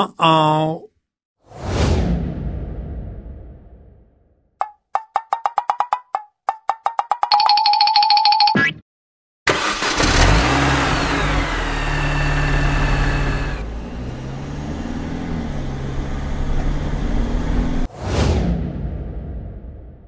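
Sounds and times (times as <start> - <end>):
brief swish: 1.4 - 4.3, 17.9 - 20.0
cartoon car engine revving: 9.5 - 17.9.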